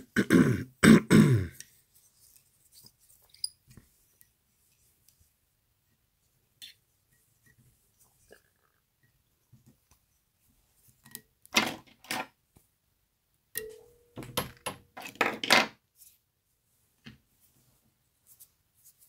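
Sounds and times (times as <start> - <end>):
tools clattering and knocking: 11.5 - 12.4, 13.6 - 15.8.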